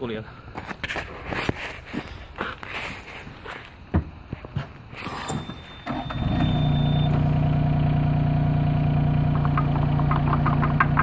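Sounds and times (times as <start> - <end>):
diesel engine starting and idling: 5.4 - 11.0.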